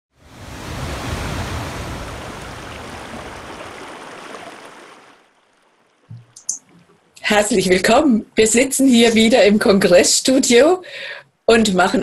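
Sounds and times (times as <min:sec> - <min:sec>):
ocean wave rushing in: 0:00.2 - 0:05.2.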